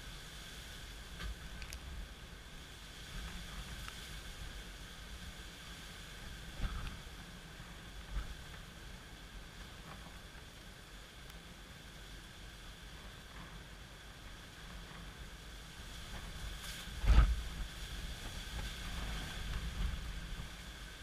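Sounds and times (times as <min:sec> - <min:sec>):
wind gusts buffeting microphone: 0:14.6 - 0:21.0.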